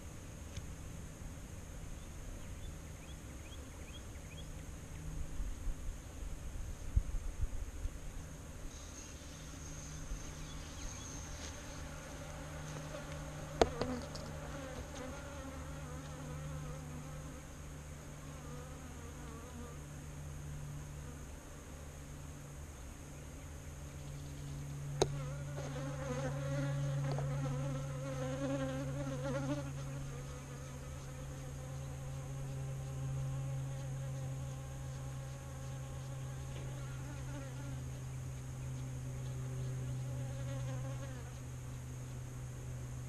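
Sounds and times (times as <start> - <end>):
honeybees buzzing: 8.7 - 19.9, 24.9 - 43.0.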